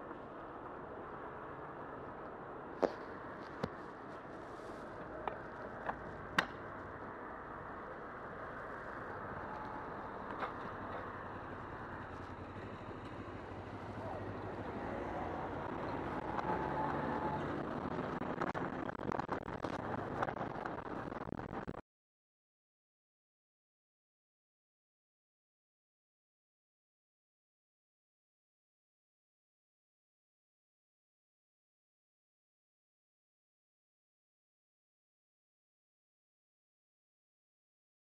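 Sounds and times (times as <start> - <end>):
crackles and clicks: 2.2 - 7.1, 7.8 - 21.8
bicycle tyres on wet road: 2.8 - 7.1
passing car engines: 3.6 - 19.2.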